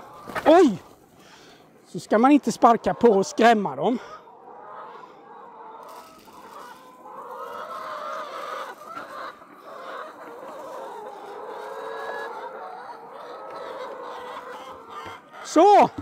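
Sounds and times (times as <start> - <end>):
hens clucking: 0.0 - 16.0.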